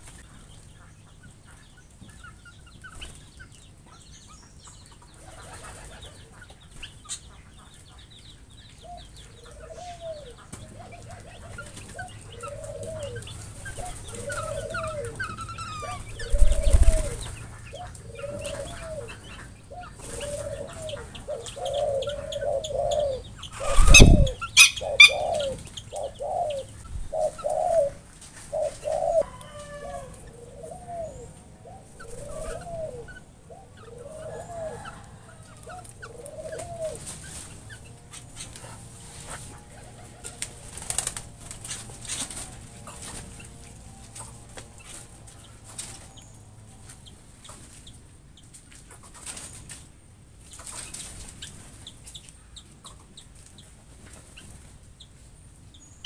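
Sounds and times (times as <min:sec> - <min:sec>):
faint high chirps of small birds: 0:00.0 - 0:56.0
bird giving low arched calls: 0:09.4 - 0:29.3.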